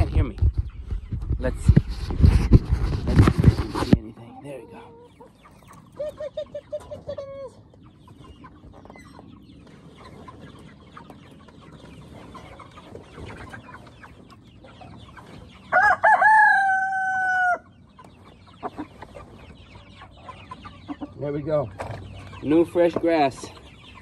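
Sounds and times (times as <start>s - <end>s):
chickens clucking and rustling: 0.0s - 24.0s
rooster crowing: 15.7s - 17.7s.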